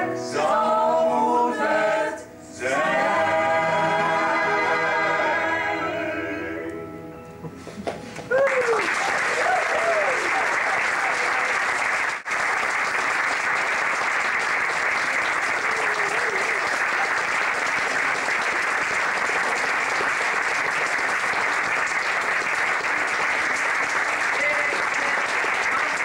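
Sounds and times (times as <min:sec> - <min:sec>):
audience applauding: 0:07.7 - 0:26.0.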